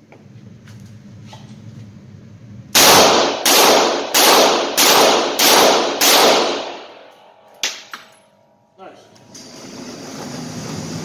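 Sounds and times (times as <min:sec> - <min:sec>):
revolver shots ringing indoors: 0:02.7 - 0:08.7.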